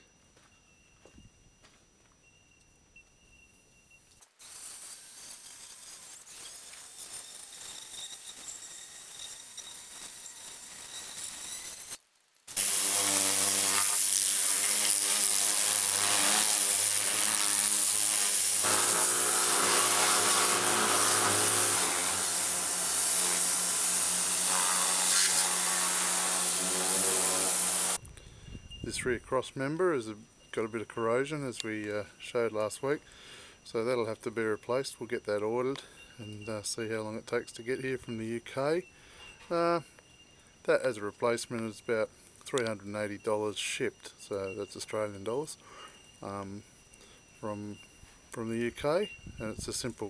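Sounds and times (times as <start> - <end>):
water jet hissing: 4.4 - 9.4, 12.5 - 28.0
pressure washer motor hum: 12.5 - 28.0.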